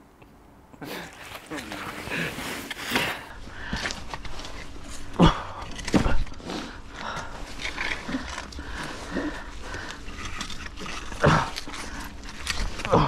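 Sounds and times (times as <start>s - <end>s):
plastic bag rustling: 0.9s - 3.3s.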